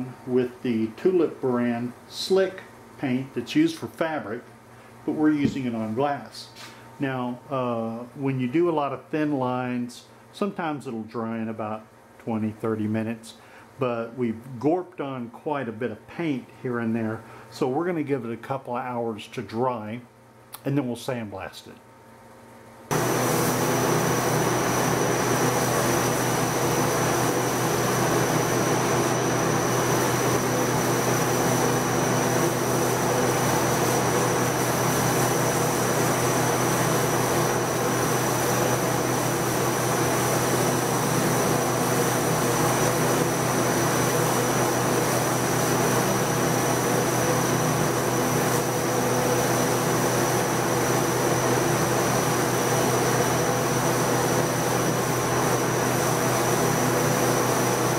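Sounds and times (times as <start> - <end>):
steady hum: 0.0 - 57.9
sandblaster hissing: 22.9 - 57.9.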